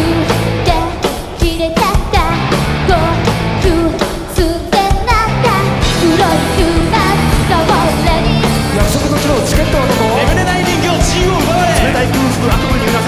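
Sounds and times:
electric guitar: 0:00.0 - 0:04.3, 0:05.0 - 0:13.0
person singing: 0:00.0 - 0:13.0
drum beat: 0:03.3 - 0:13.0.

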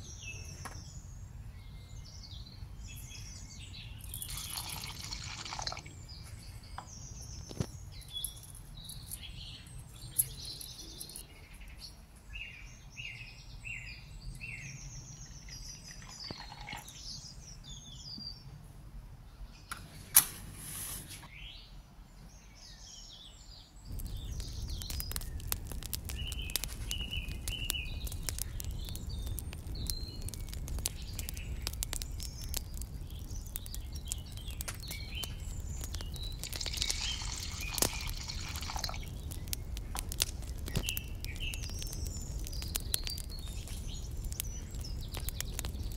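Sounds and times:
birds chirping: 0:00.0 - 0:18.5, 0:21.2 - 0:45.9
wood fire crackling and popping: 0:02.8 - 0:11.2, 0:23.9 - 0:45.9
water pouring into pot: 0:04.1 - 0:06.0, 0:15.6 - 0:17.0, 0:36.2 - 0:39.2
match striking and flaring: 0:23.9 - 0:45.9.

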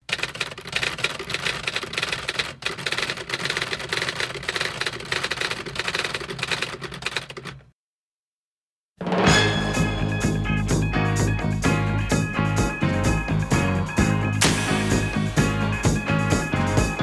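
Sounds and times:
typewriter keystroke clacks: 0:00.0 - 0:07.7.

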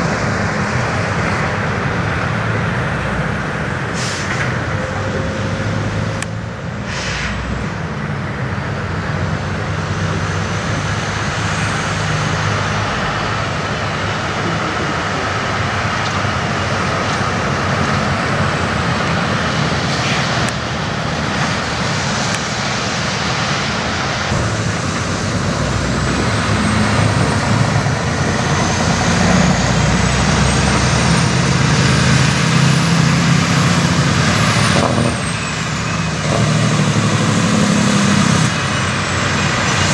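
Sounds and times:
truck diesel engine: 0:00.0 - 0:39.9.

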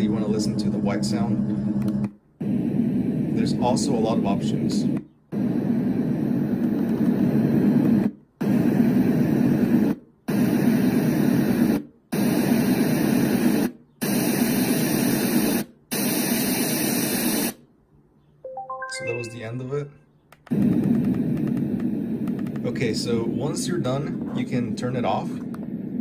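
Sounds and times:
white noise from speaker: 0:02.4 - 0:15.7, 0:20.8 - 0:26.0.

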